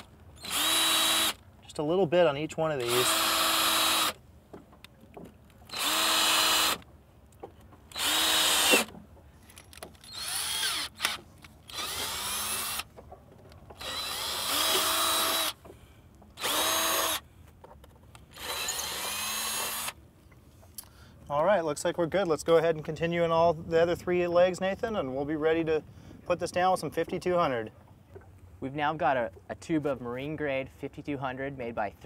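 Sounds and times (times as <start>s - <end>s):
cordless drill spinning: 0.4s - 1.4s, 2.8s - 4.2s, 5.7s - 6.8s, 7.9s - 8.9s, 9.9s - 12.9s, 13.8s - 15.6s, 16.4s - 17.2s, 18.3s - 20.0s.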